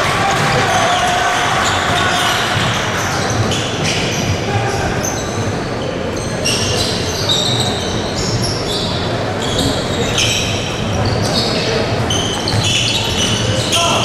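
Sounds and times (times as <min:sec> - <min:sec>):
shoes squeaking on the floor: 0:00.5 - 0:14.0.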